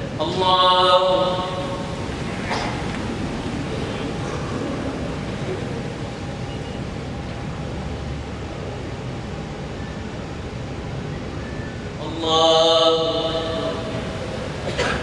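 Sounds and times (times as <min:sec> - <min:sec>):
faint steady tone: 0:03.4 - 0:11.8.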